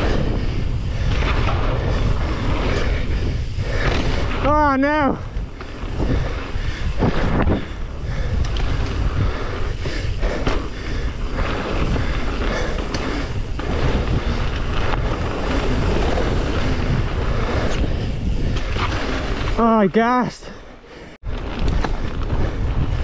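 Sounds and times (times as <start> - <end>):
wind buffeting microphone: 0.0 - 20.0, 21.2 - 23.0
bike tyre roar on gravel: 0.0 - 23.0.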